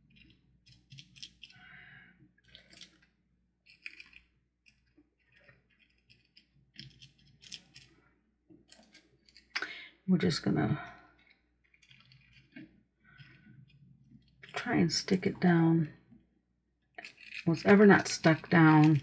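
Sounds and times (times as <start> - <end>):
film crinkling and clicking: 11.0 - 16.2, 16.9 - 19.0.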